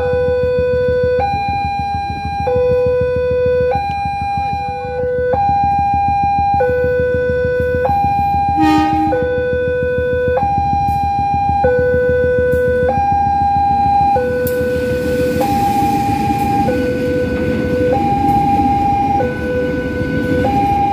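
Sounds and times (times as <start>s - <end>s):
two-tone crossing alarm: 0.0s - 20.9s
horn blast: 8.6s - 9.4s.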